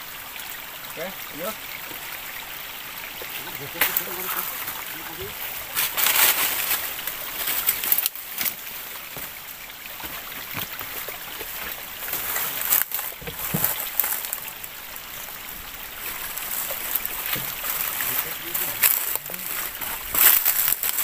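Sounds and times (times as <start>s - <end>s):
stream trickling: 0.0s - 21.0s
footsteps on stones: 5.6s - 9.4s, 10.0s - 14.6s, 16.0s - 21.0s.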